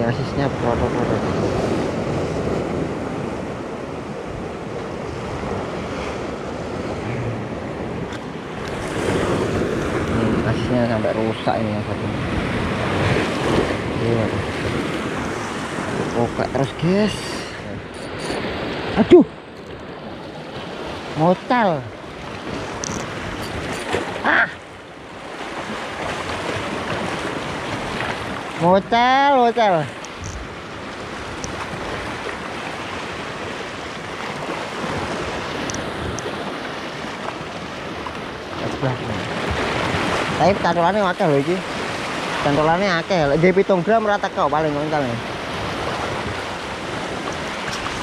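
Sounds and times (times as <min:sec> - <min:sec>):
wind on microphone: 0:00.0 - 0:29.1, 0:29.7 - 0:43.7, 0:44.5 - 0:48.0
sea waves washing against rocks: 0:00.0 - 0:48.0
wind buffeting microphone: 0:44.5 - 0:48.0.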